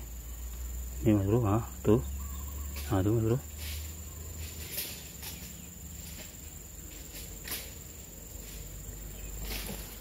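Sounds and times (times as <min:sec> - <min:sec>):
insect drone: 0:00.0 - 0:10.0
rustles in undergrowth: 0:02.2 - 0:10.0.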